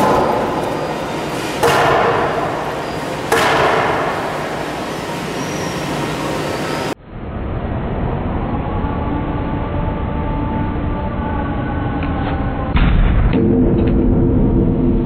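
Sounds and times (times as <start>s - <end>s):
wooden beam banging on screen: 0.0s - 4.7s
low rumble: 7.0s - 15.0s.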